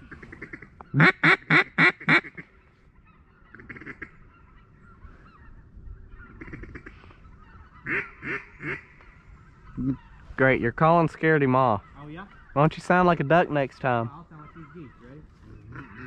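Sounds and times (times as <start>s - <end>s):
duck call quacking: 0.0s - 2.5s, 3.5s - 4.2s, 7.8s - 8.9s, 14.4s - 16.0s.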